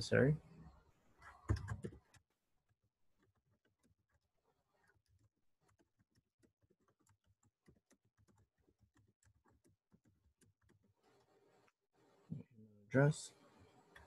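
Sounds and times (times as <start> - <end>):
typing on computer keyboard: 1.4 - 2.2, 5.1 - 10.9.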